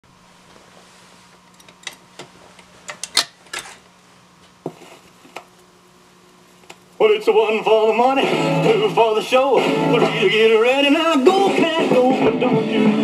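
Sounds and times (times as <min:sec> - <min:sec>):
low amplifier hum: 0:00.0 - 0:13.0.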